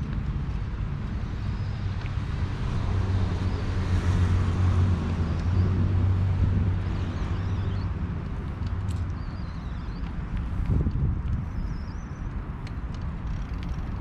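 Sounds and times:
vehicle passing: 0:00.7 - 0:08.9.

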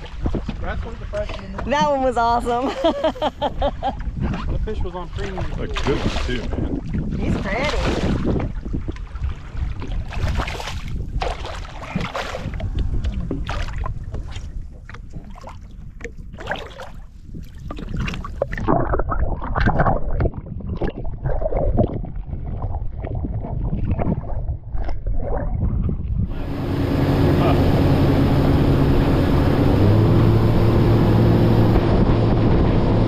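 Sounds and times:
muffled underwater water sound: 0:00.0 - 0:33.0
water splashing against boat hull: 0:00.0 - 0:33.0.

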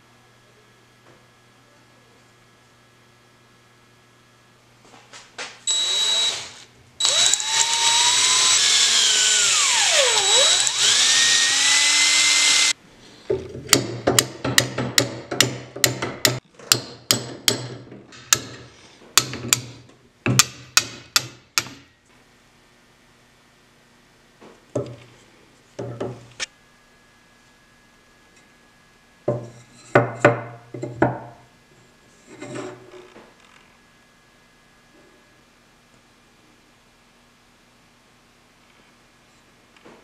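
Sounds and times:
power tool whining: 0:05.7 - 0:12.8.

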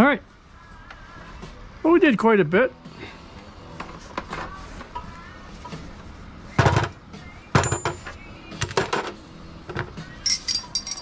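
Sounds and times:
metal tools clanking on concrete: 0:07.6 - 0:11.0.

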